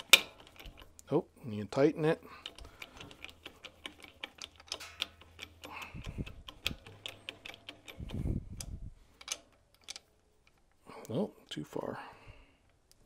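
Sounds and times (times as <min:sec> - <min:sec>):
metal tool clicking: 0:02.4 - 0:10.7.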